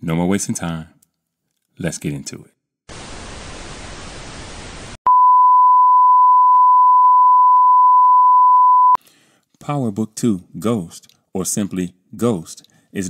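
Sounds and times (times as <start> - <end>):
test-pattern beep: 5.1 - 9.0.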